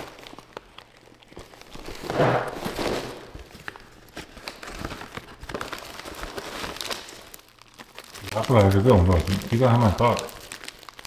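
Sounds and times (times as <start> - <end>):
plastic packaging crinkling: 0.0 - 11.0
small crackles: 0.0 - 11.0.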